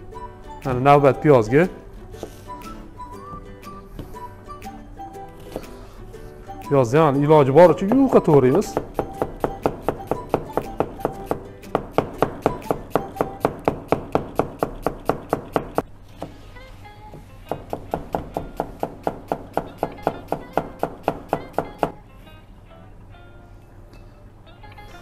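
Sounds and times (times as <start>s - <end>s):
background music: 0.0s - 25.0s
knife slicing onion on board: 5.4s - 5.9s, 8.5s - 16.4s, 17.5s - 21.9s.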